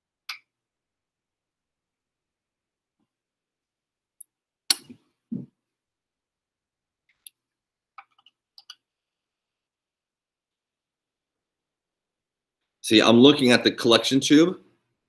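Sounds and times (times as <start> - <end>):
plastic tubes clicking and knocking: 7.1 - 8.9.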